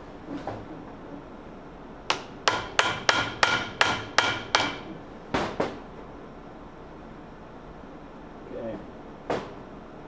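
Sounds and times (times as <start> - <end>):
hammer striking metal: 2.1 - 4.9.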